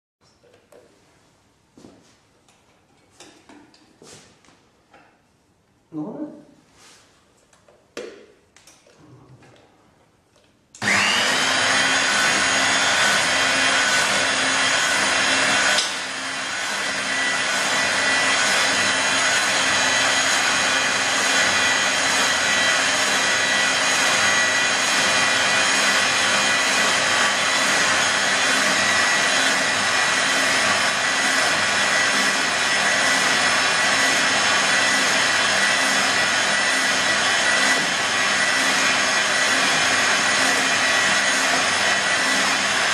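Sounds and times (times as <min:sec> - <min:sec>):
electric paddle mixer whining: 0:10.8 - 0:42.9.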